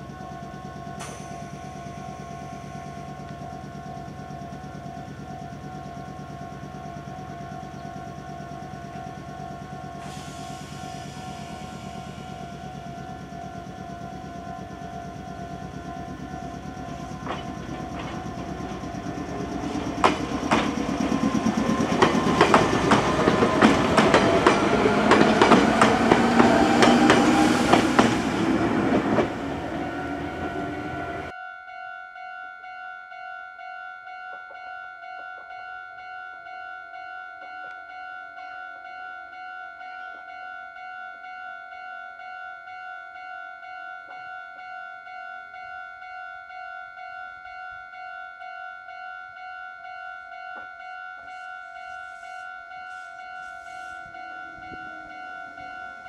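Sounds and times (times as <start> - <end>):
train motor whine: 0.0 - 31.3, 50.2 - 56.0
railway crossing alarm ringing: 0.0 - 56.0
train wheels clacking over rail joints: 16.8 - 29.5.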